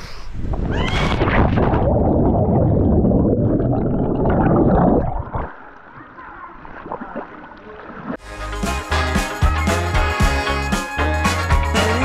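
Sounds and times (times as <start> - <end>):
muffled underwater sound: 0.8 - 8.2
underwater churning water and bubbles: 1.2 - 6.0.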